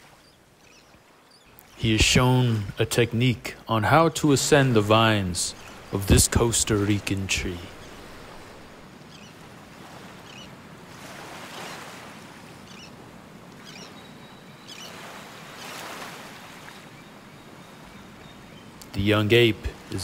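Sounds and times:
faint high bird chirps: 12.7s - 13.0s, 13.6s - 15.0s.

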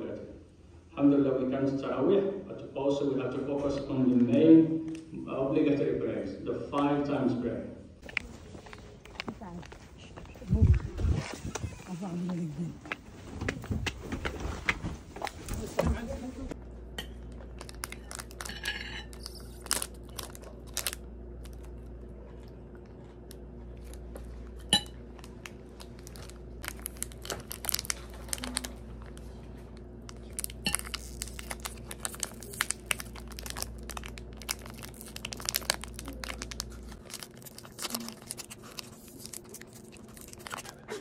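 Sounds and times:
steady low hum: 0.0s - 41.0s
plastic wrapper crinkling: 17.3s - 21.8s, 25.2s - 41.0s.

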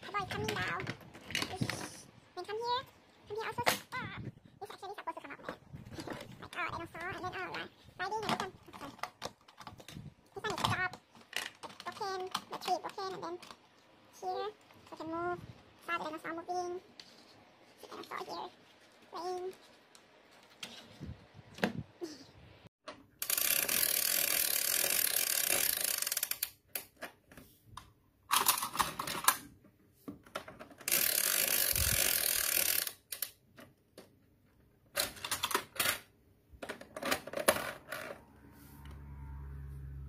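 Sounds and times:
plastic toy clicking: 6.0s - 13.6s, 23.2s - 27.1s, 30.7s - 33.4s, 35.0s - 38.1s.

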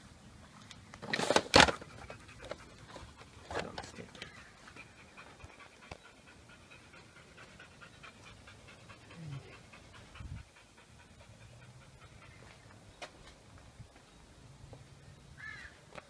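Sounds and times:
dog panting: 1.8s - 12.8s.

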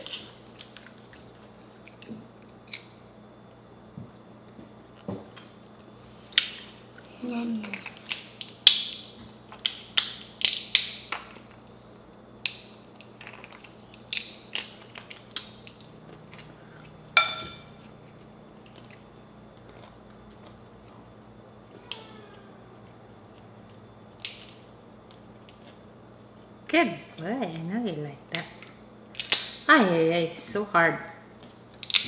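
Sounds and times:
crab shell cracking: 7.7s - 11.6s, 12.2s - 15.9s, 24.1s - 25.8s, 28.3s - 29.6s, 31.8s - 32.0s
metal clink: 17.2s - 17.7s.

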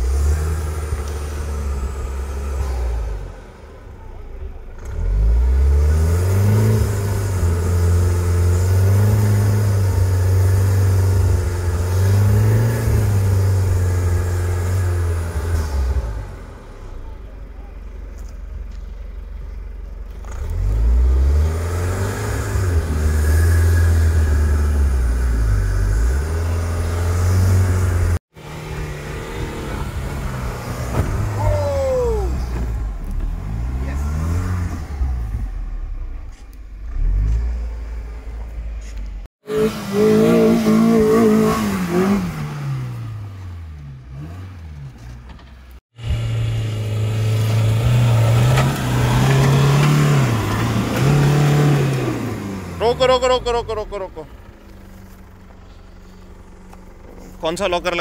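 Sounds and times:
off-road vehicle engine revving: 0.0s - 58.0s.

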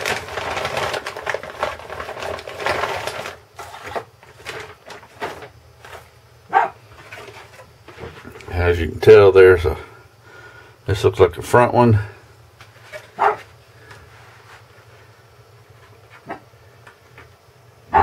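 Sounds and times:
plastic bag crinkling: 0.0s - 6.1s, 6.9s - 8.5s.

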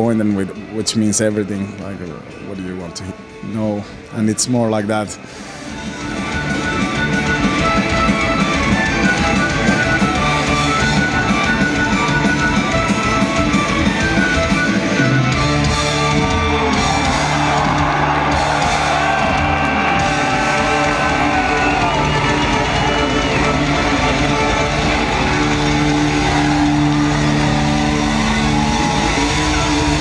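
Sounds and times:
drums: 5.4s - 30.0s
fiddle melody: 5.6s - 30.0s
distorted electric guitars: 5.7s - 30.0s.

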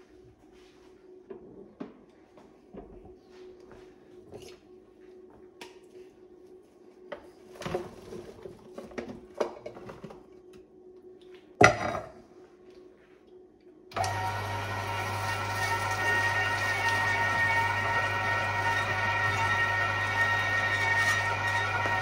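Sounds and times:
grinder motor humming: 14.0s - 22.0s.

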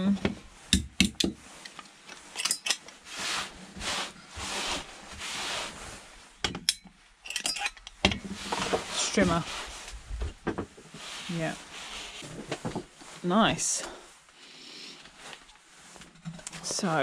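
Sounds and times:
metal parts clinking: 2.3s - 2.9s, 6.6s - 8.1s.

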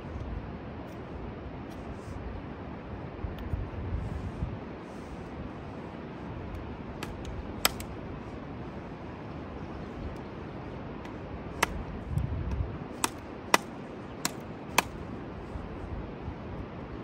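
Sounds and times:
steady background hiss: 0.0s - 17.0s
dry twigs snapping under blade: 7.0s - 7.9s, 13.0s - 15.0s.

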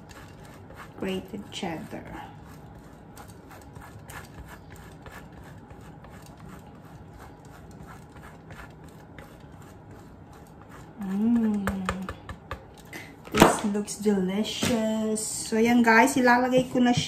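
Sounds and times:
cheese grating on metal grater: 0.0s - 11.8s.

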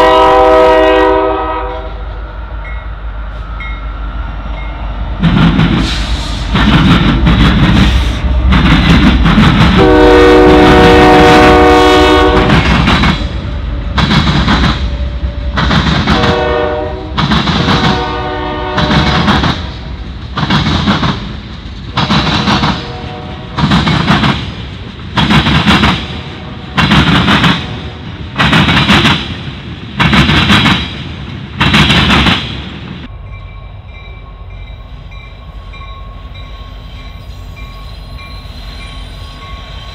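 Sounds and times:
train air horn: 0.0s - 2.2s, 5.8s - 6.5s, 9.7s - 14.0s, 14.8s - 19.8s, 22.6s - 23.6s.

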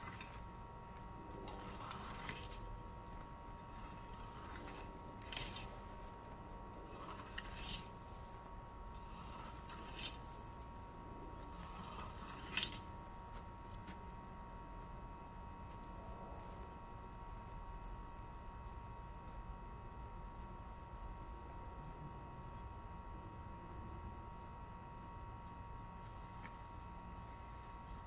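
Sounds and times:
rake scraping dry grass: 0.0s - 0.5s, 1.3s - 2.7s, 3.6s - 10.7s, 11.4s - 13.0s.

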